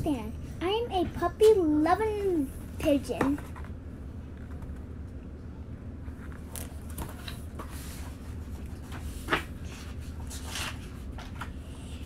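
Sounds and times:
book pages rustling: 6.0s - 11.6s.

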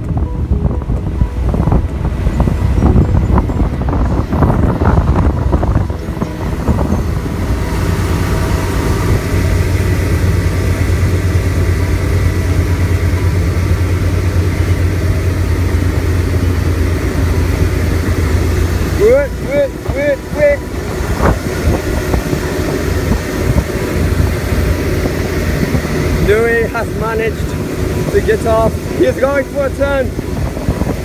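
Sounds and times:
motorboat engine droning: 0.0s - 31.0s
water rushing in wake: 0.0s - 31.0s
wind buffeting microphone: 0.0s - 31.0s
microphone handling noise: 20.7s - 26.0s.

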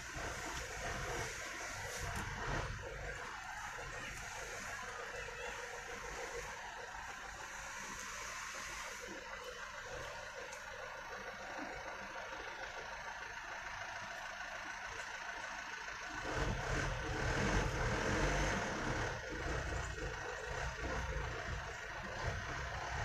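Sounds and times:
steady background noise: 0.0s - 23.0s
vehicle engine passing: 16.2s - 23.0s.

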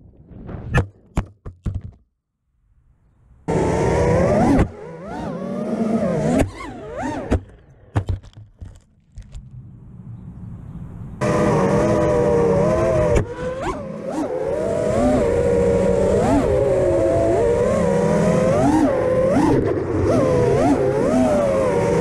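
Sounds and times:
drone motors whining: 3.5s - 8.0s, 8.6s - 22.0s
drone crashing on concrete: 6.3s - 10.2s
low steady hum: 6.6s - 13.6s.

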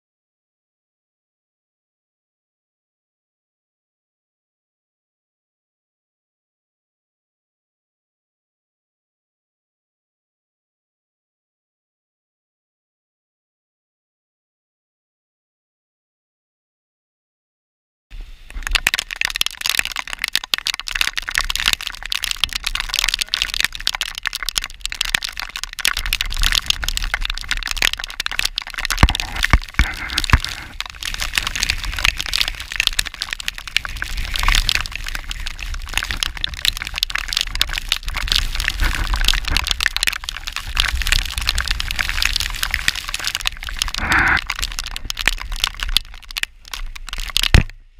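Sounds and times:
heavy rain pelting a camera: 18.2s - 47.9s
wind rumbling on microphone: 18.2s - 47.9s.

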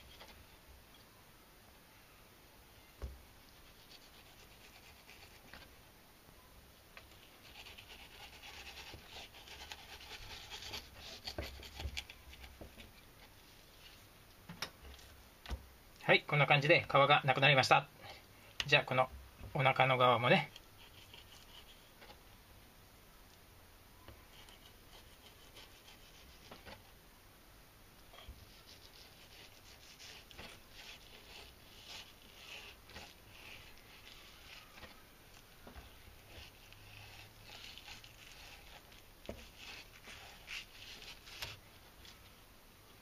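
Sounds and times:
knife scratching on cutting board: 7.1s - 12.6s, 20.5s - 22.1s, 24.3s - 26.8s, 28.2s - 35.0s, 35.7s - 41.6s.

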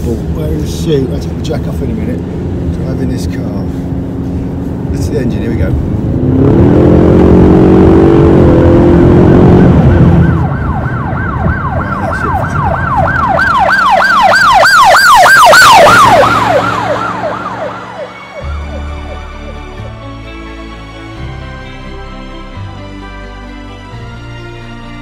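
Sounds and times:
car engine revving: 0.0s - 25.0s
yelping siren: 7.6s - 19.7s.

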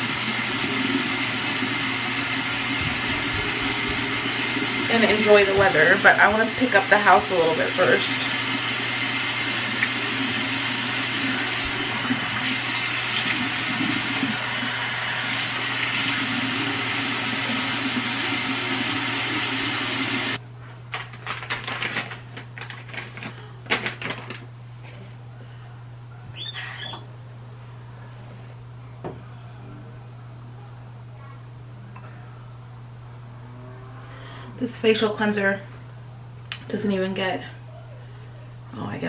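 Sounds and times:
faucet running into sink: 0.0s - 20.4s.

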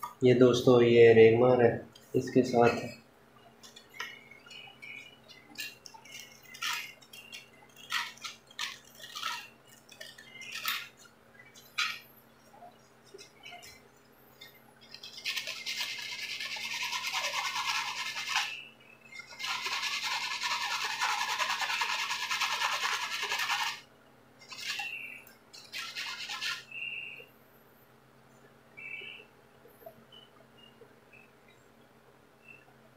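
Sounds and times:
sandpaper scraping metal: 15.0s - 18.5s, 19.4s - 23.8s, 25.7s - 26.6s.

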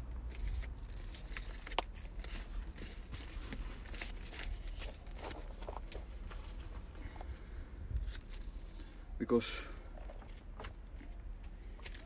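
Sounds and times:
low steady rumble: 0.0s - 12.0s
banknotes rustling: 0.4s - 7.2s.

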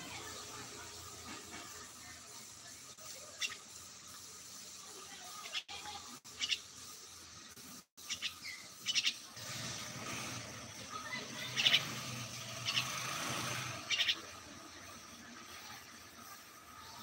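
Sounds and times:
bird chirping sharply: 13.9s - 14.3s.

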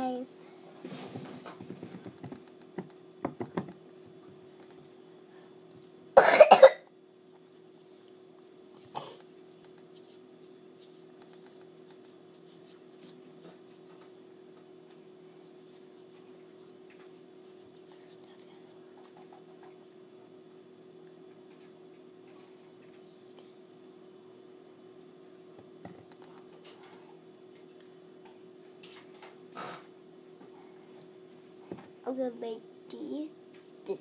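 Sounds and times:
child coughing: 6.2s - 6.9s, 8.9s - 9.2s.

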